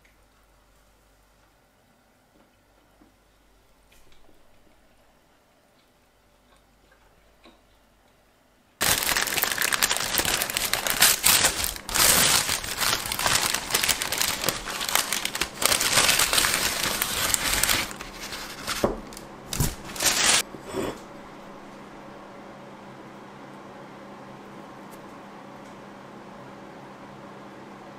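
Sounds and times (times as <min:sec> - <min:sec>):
paper bag crinkling and rustling: 0:08.8 - 0:20.5.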